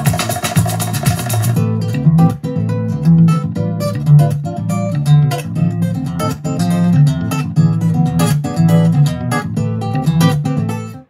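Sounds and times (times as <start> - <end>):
bass line: 0.0 - 10.9
strummed acoustic guitar music: 0.0 - 11.0.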